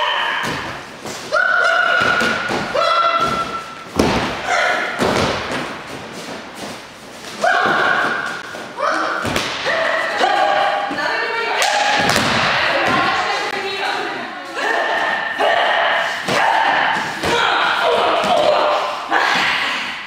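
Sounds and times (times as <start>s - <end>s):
bodies thudding on mats: 2.0s - 6.7s.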